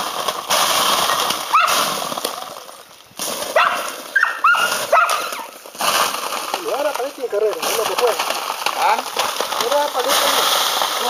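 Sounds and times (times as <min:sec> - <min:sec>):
steady rushing hiss: 0:00.0 - 0:11.0
dog yipping and whimpering: 0:03.6 - 0:05.5.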